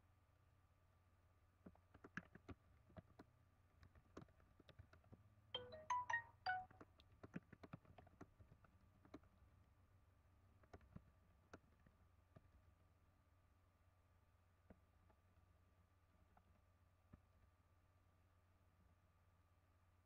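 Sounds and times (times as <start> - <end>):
faint irregular clicks: 1.6 - 9.4, 10.6 - 12.6
electronic notification jingle: 5.6 - 6.7.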